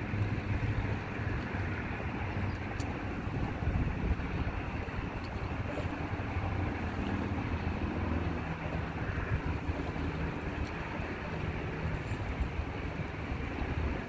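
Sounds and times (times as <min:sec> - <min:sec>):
faint engine hum: 0:00.0 - 0:14.0
traffic rumble: 0:00.0 - 0:14.0
wind on microphone: 0:00.0 - 0:14.0.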